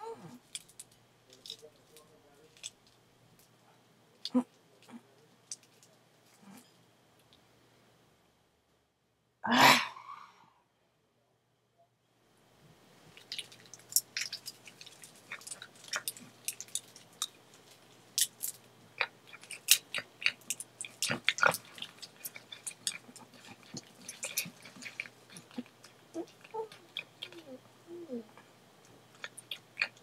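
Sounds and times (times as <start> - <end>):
squirrel gnawing on a nut: 0.3 - 3.6, 13.1 - 27.7, 28.8 - 30.0.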